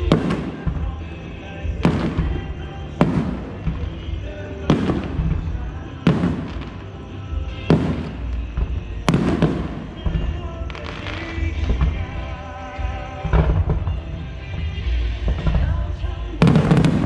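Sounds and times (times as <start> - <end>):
firework shells booming: 0.0 - 17.0
music: 0.0 - 17.0.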